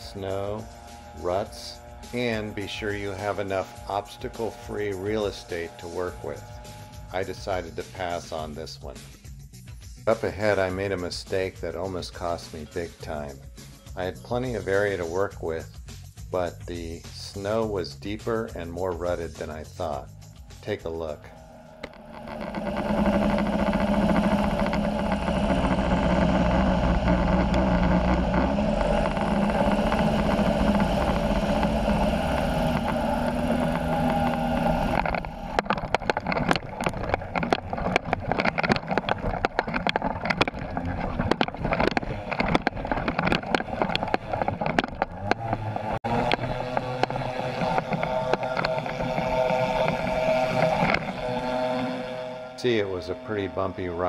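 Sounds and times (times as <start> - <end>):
skis bumping and rattling on snow: 0.0 - 8.8, 10.1 - 13.4, 17.1 - 20.0, 22.0 - 51.4
light aircraft engine running: 0.0 - 54.0.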